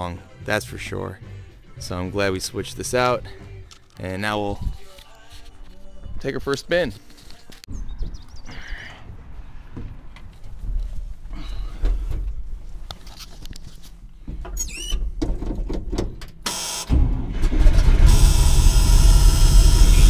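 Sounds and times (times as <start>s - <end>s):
car engine starting and running: 16.3s - 20.0s.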